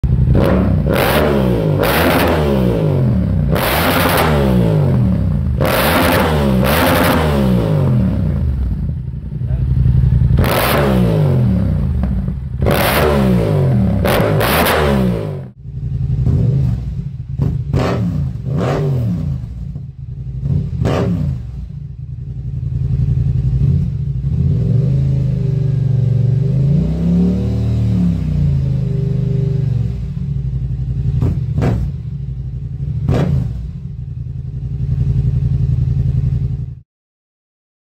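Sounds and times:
motorcycle idling: 0:00.0 - 0:00.9, 0:07.8 - 0:12.7, 0:15.5 - 0:18.5, 0:19.2 - 0:26.5, 0:28.5 - 0:36.8
motorcycle engine revving: 0:00.0 - 0:36.8.

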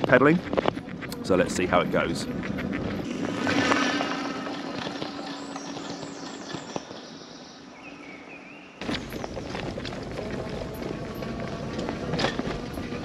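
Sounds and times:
bike tyres on dirt track: 0:00.0 - 0:13.0
bird chirps: 0:04.1 - 0:09.4.

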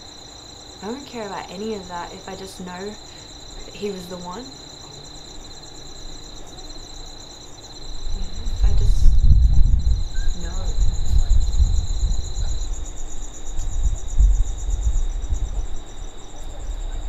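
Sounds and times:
crickets chirping: 0:00.0 - 0:17.0
loud low rumble: 0:07.9 - 0:17.0.

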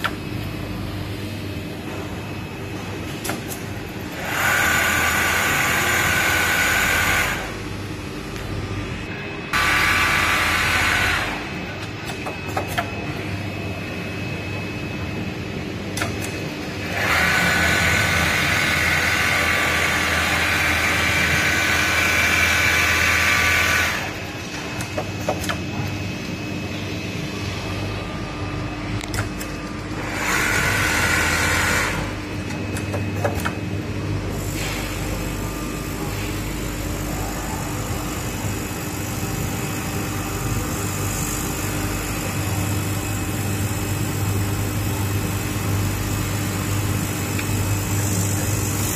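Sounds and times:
sewing machine low hum: 0:03.6 - 0:07.8, 0:08.8 - 0:13.0, 0:16.0 - 0:26.0, 0:27.6 - 0:48.9
sewing machine whirring: 0:04.1 - 0:07.6, 0:09.5 - 0:11.5, 0:16.8 - 0:24.2, 0:30.0 - 0:33.5.

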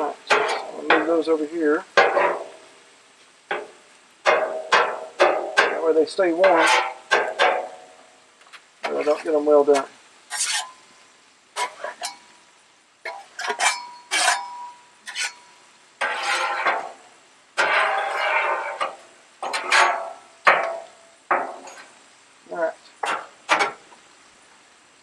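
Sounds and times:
metal spatulas scraping on griddle: 0:00.0 - 0:02.7, 0:03.5 - 0:07.9, 0:08.8 - 0:10.8, 0:11.6 - 0:12.3, 0:13.0 - 0:22.0, 0:22.9 - 0:23.9.

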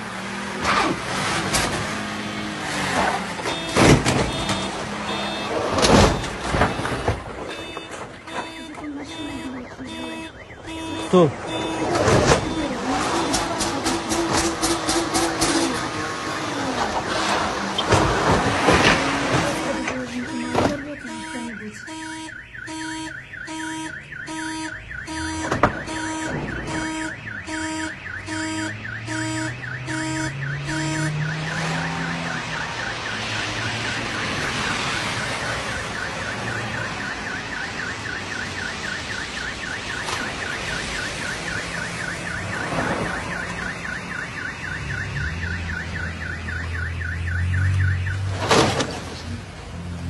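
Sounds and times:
car engine revving: 0:00.0 - 0:07.4, 0:08.4 - 0:21.6, 0:24.1 - 0:37.2
car alarm horn tone pulsing: 0:02.9 - 0:48.3
fast warbling siren: 0:03.0 - 0:17.9, 0:19.4 - 0:48.3.

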